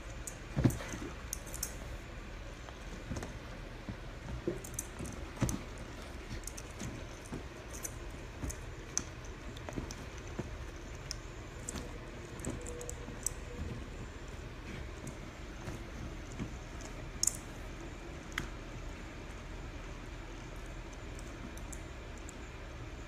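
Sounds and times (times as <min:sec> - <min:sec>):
puppy pawing on fabric: 0:02.6 - 0:17.8.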